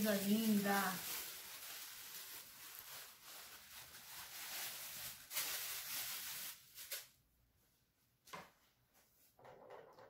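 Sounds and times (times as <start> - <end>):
plastic wrap crinkling: 0.0 - 7.2.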